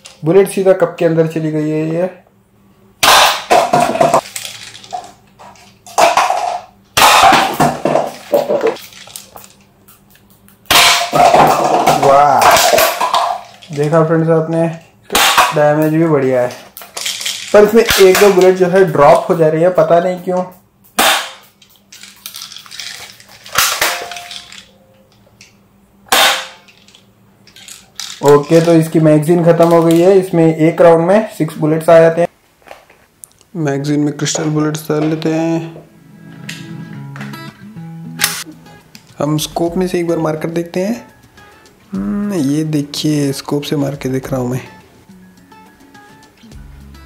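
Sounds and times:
pellets knocking over paper cups: 3.0s - 9.5s, 10.7s - 19.4s, 21.0s - 24.7s, 26.1s - 26.8s.

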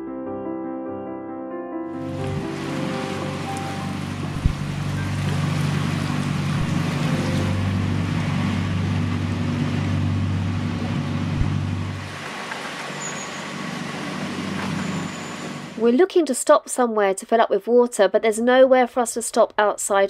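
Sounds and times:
boat engine chugging: 2.1s - 15.8s.

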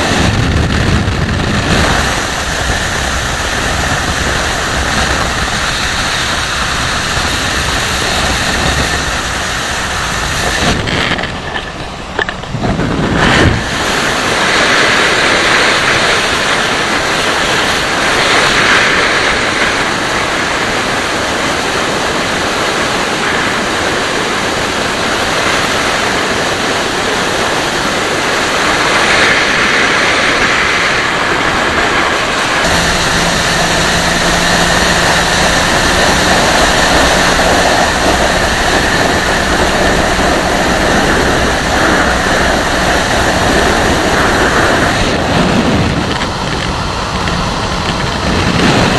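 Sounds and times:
motorcycle engine running: 0.0s - 26.2s, 30.3s - 48.9s
wind rushing over microphone: 0.0s - 48.9s.

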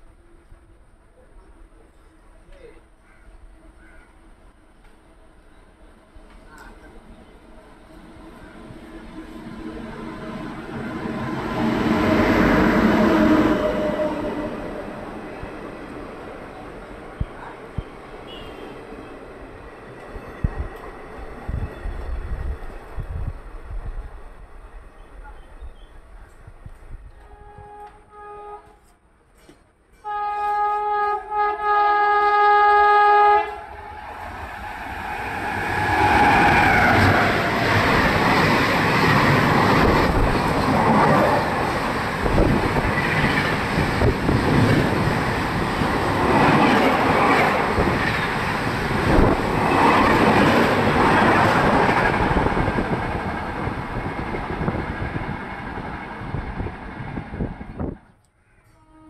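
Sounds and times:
train horn: 9.2s - 15.1s, 18.3s - 18.8s, 27.1s - 29.0s, 30.0s - 34.2s, 58.6s - 59.0s.

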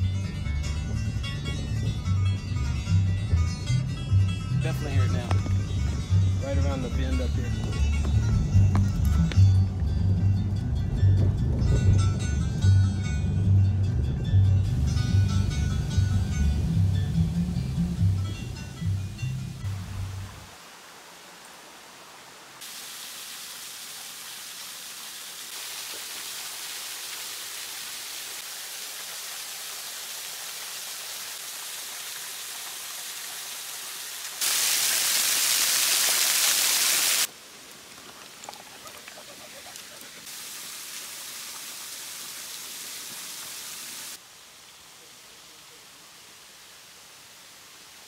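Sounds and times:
waterfall splashing onto stones: 19.6s - 44.9s.

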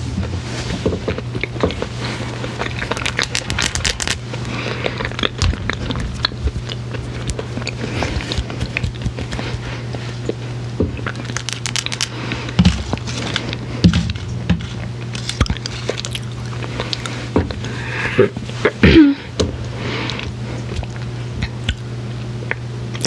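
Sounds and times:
steady low hum: 0.0s - 23.0s
wet mouth clicks and smacks: 20.7s - 21.9s.

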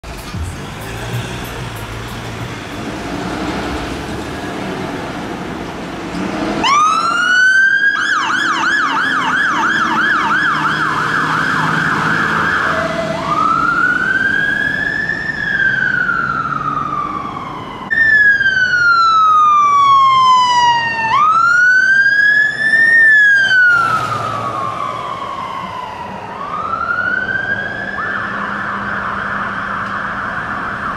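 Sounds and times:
diesel engine rumbling: 0.0s - 7.7s
fire engine siren: 6.6s - 30.9s.

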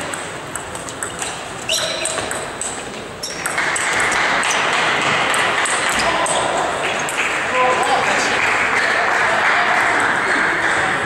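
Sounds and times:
table tennis ball clicking: 0.0s - 6.0s.

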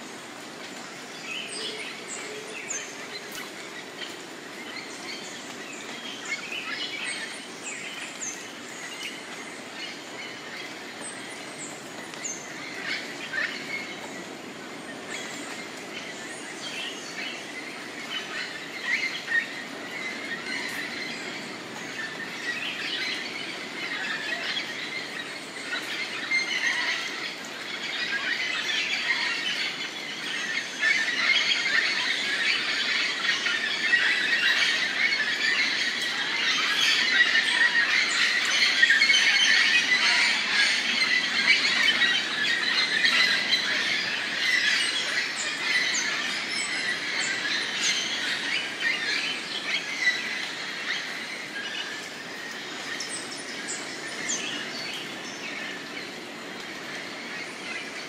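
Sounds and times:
steady background hiss: 0.0s - 58.0s
wild birds chirping: 0.0s - 58.0s.

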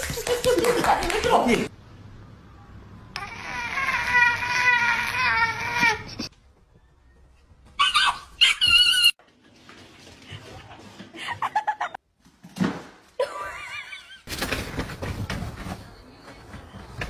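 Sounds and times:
animals crying: 7.8s - 9.2s.

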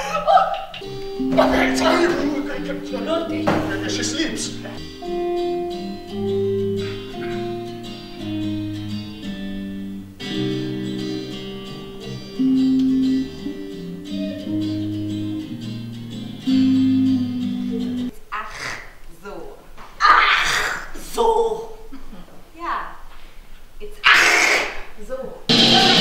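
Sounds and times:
strummed guitar chords: 0.8s - 18.1s, 25.5s - 26.0s.

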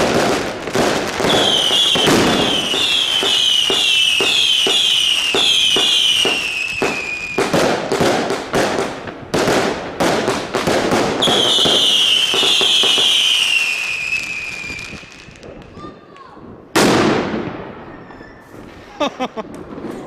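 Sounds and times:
whistling firework shots: 0.0s - 8.8s, 9.4s - 15.8s, 16.8s - 20.0s
firework bangs and crackling: 0.0s - 20.0s.

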